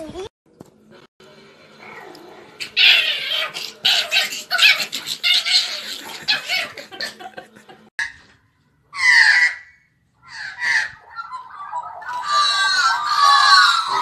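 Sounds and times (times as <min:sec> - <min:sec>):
cat vocalizing in harsh bursts: 0:01.9 - 0:06.9.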